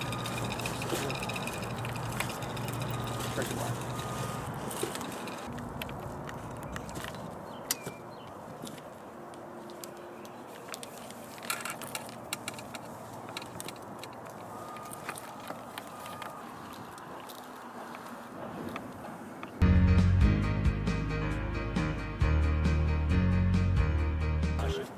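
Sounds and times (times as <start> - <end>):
handling clicks and rattles: 0.0 - 8.0, 9.6 - 19.6
steady background noise: 0.0 - 19.6.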